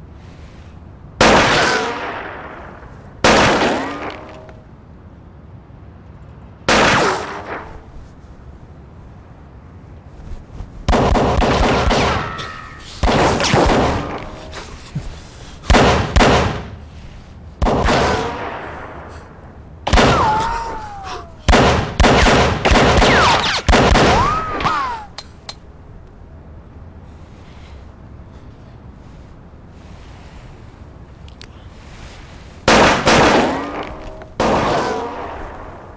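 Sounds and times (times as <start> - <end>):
pistol shots: 1.2 - 2.6, 3.2 - 4.4, 6.7 - 7.7, 10.9 - 12.4, 13.0 - 14.3, 15.7 - 16.7, 17.6 - 19.0, 19.9 - 20.5, 21.5 - 24.8, 32.7 - 35.7.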